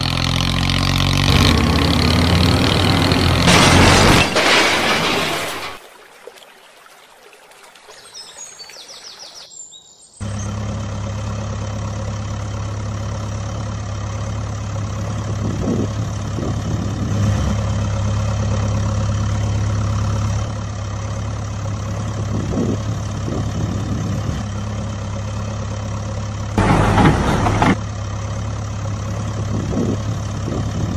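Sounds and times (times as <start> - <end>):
engine idling: 10.2 - 30.9.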